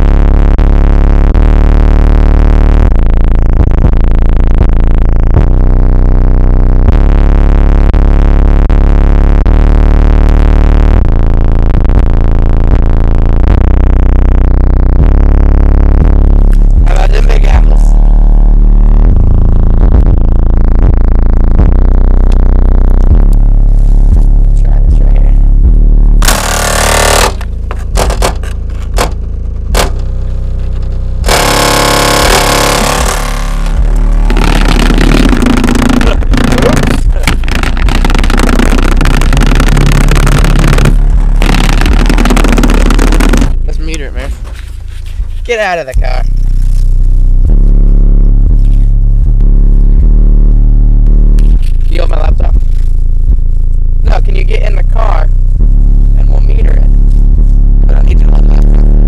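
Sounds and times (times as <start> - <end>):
bass-heavy electronic music: 0.0 - 59.0
trunk lid and plate rattling: 27.3 - 30.2.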